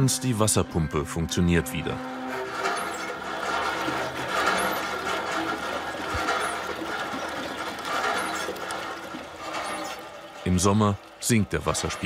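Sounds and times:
hand pump creaking and clanking: 2.0 - 12.0
short high squeak: 2.3 - 5.5.

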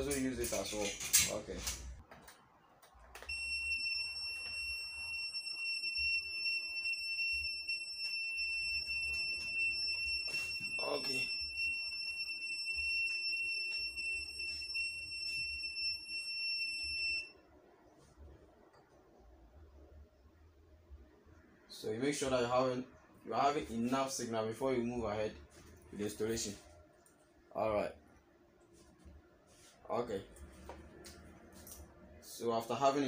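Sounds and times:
high-pitched continuous beep: 3.3 - 17.4.

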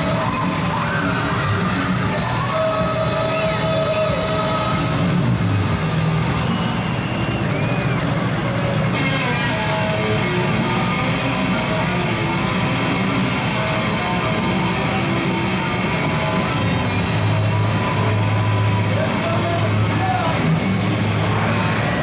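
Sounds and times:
guitar music: 8.1 - 22.0.

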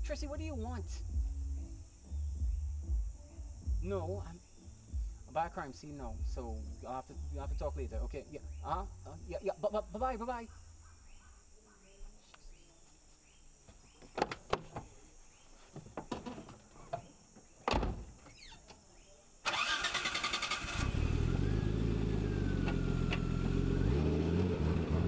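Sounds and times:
car door shutting: 17.6 - 18.5
car starter cranking: 19.5 - 21.3.

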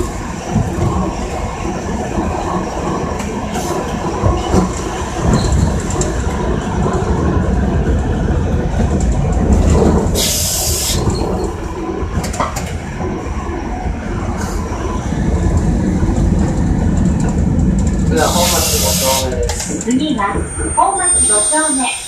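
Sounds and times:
streetcar wheels rumbling: 0.0 - 22.0
air hiss: 18.4 - 19.2.

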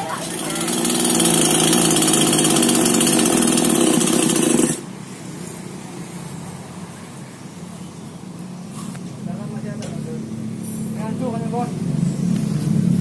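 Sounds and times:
chainsaw engine at high revs: 0.0 - 4.9.

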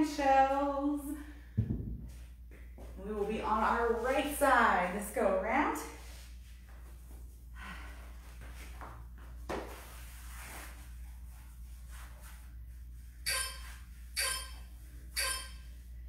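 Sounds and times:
short electronic timer beeps: 13.2 - 15.7.

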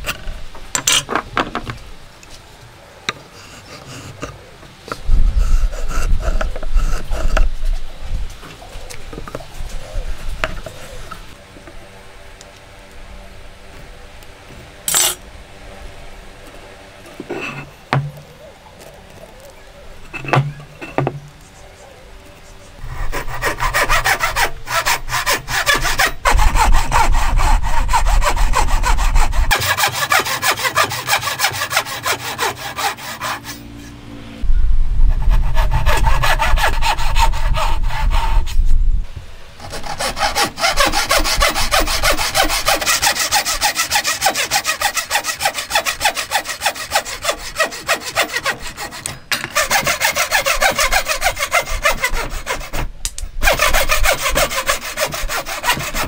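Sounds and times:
hand saw cutting wood: 22.8 - 33.7, 35.2 - 38.6, 39.6 - 56.0.

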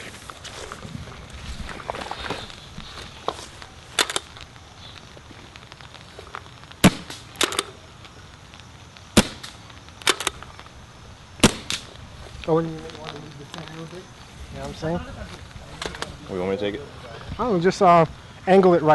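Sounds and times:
paintball marker shots popping: 6.8 - 7.8, 9.1 - 10.5, 11.4 - 12.0.

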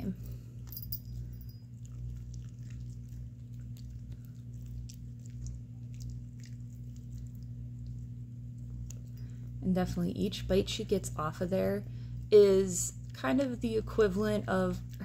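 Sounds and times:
low hum: 0.0 - 15.0
dog gnawing on chew treat: 1.1 - 9.2.

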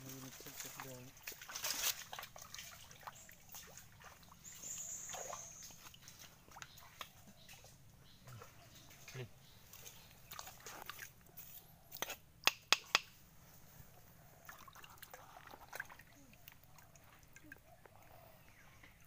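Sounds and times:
small splashes: 0.0 - 11.2, 14.4 - 18.2
mud squelching: 0.0 - 13.2.

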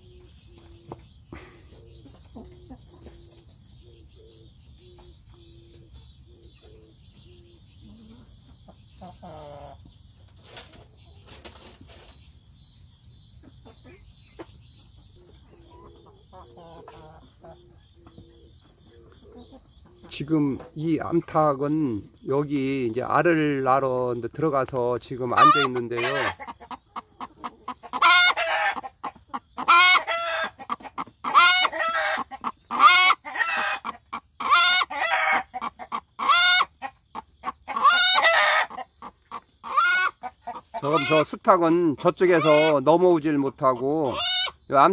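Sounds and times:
hen cackling: 0.0 - 9.9, 13.4 - 20.7, 25.2 - 44.6
bird chirping: 0.0 - 44.9
hen clucking: 0.0 - 44.9.

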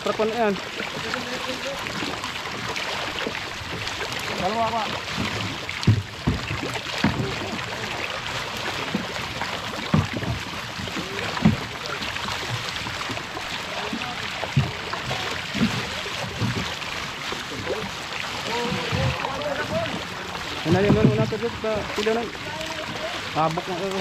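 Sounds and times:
fish splashing in water: 0.0 - 24.0
dull low thumps: 9.8 - 22.2.

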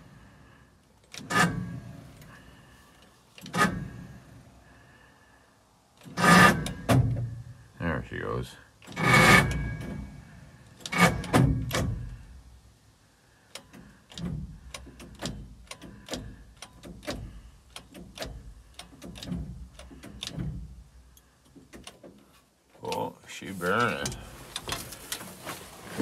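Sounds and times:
starter motor clicking and clunking: 13.5 - 22.3.

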